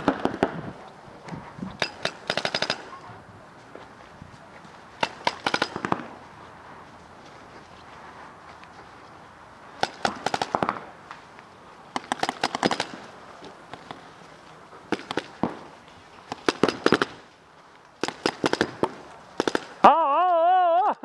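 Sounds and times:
paintball markers firing: 0.0s - 0.7s, 1.8s - 2.9s, 5.0s - 6.1s, 9.8s - 10.9s, 11.9s - 14.1s, 14.9s - 17.2s, 18.0s - 19.8s.

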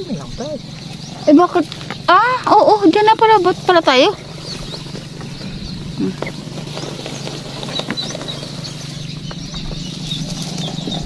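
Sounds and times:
steady low hum: 0.0s - 11.0s
steps rustling through dry grass: 3.4s - 11.0s.

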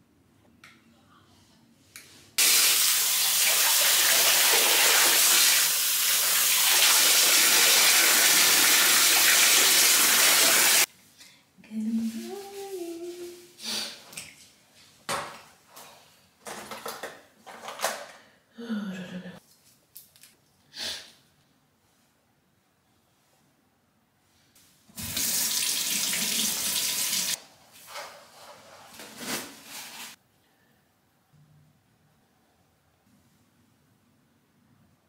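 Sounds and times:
water running into bathtub: 2.4s - 10.9s, 24.9s - 27.4s.

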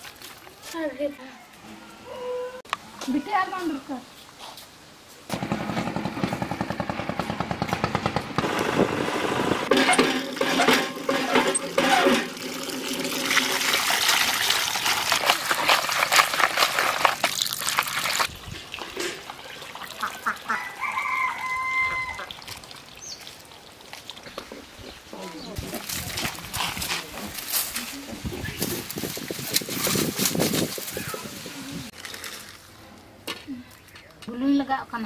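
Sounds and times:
water gushing from hand pump: 9.6s - 24.3s.

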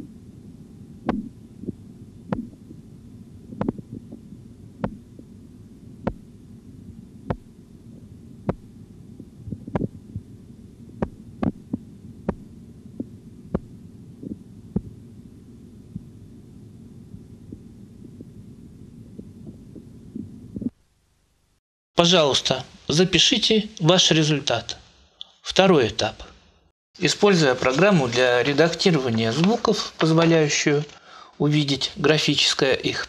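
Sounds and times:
low rumble: 0.0s - 20.8s
heartbeat taps through stethoscope: 1.0s - 2.8s, 3.5s - 4.2s, 4.8s - 5.3s, 6.0s - 6.3s, 7.3s - 7.5s, 8.4s - 10.3s, 11.0s - 15.0s, 15.9s - 16.1s, 19.2s - 20.8s.

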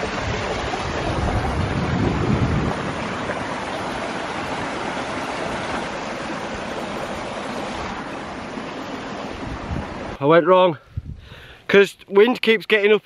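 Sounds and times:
stream rushing over stones: 0.0s - 10.4s.

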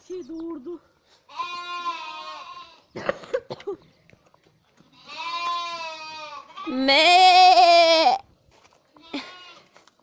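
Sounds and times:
sheep bleating: 1.3s - 2.9s, 4.9s - 8.2s, 9.0s - 9.7s.

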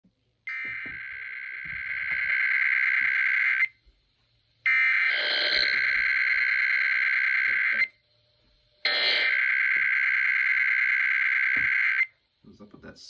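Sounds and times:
harsh buzzing alert tones: 4.7s - 7.9s, 8.9s - 12.1s.

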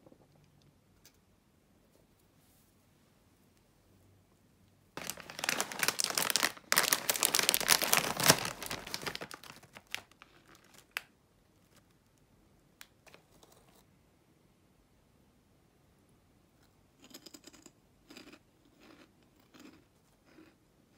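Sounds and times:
faint bag rustles: 5.0s - 11.0s
snack bag crinkling and tearing: 5.0s - 11.1s.

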